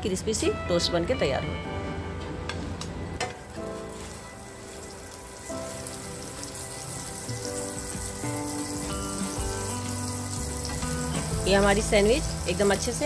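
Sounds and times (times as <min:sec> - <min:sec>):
soft background music: 0:00.0 - 0:13.0
butter sizzling in a frying pan: 0:03.4 - 0:13.0.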